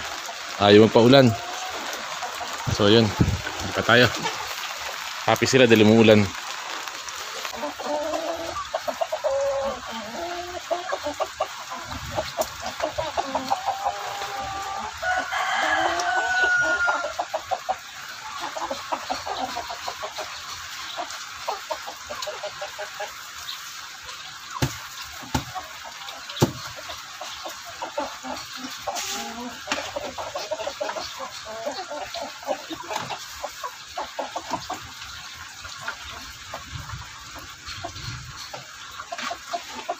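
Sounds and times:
chickens clucking: 0.0 - 39.9
rooster crowing: 14.4 - 17.2
sharp knocks: 24.6 - 25.5.

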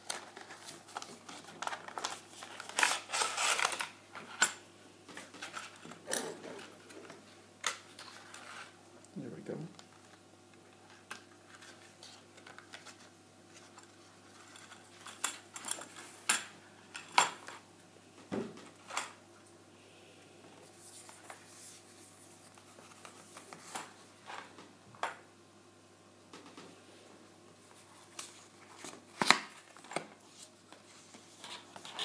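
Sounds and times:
plastic and paper handling: 0.0 - 4.4, 9.8 - 16.1.

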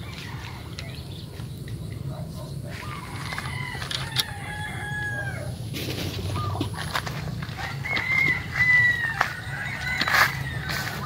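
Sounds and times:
rooster crowing: 0.0 - 1.0, 2.7 - 5.7, 7.4 - 11.0.

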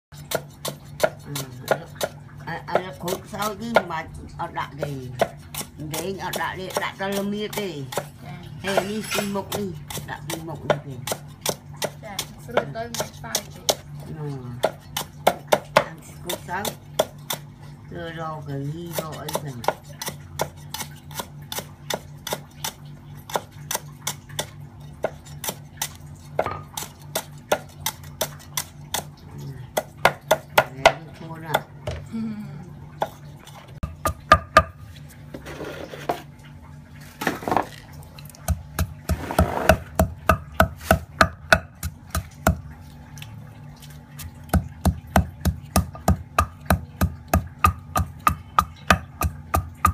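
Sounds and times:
pestle pounding in stone mortar: 0.2 - 17.6, 18.8 - 32.0, 33.8 - 34.9, 38.4 - 42.8, 44.2 - 49.9
cleaver chopping on wooden block: 38.4 - 42.6, 44.5 - 49.9.

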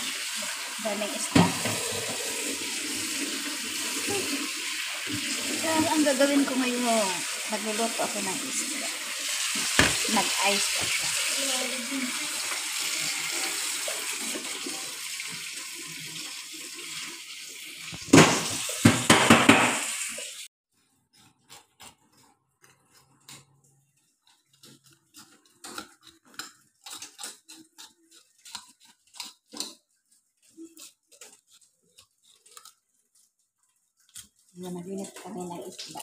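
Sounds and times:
tap water running into pot: 0.0 - 20.5, 34.1 - 36.0.

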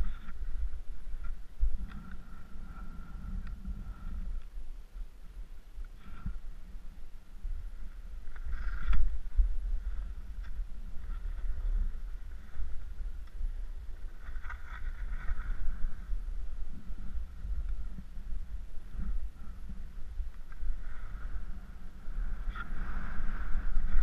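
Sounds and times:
wind on microphone: 0.0 - 24.0
skis scraping through snow: 20.8 - 24.0.

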